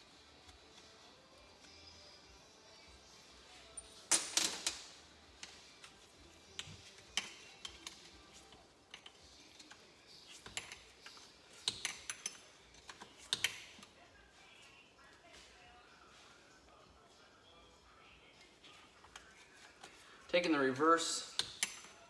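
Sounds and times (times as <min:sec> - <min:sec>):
tools and bolts clinking on metal: 0:06.6 - 0:13.9, 0:21.2 - 0:22.0.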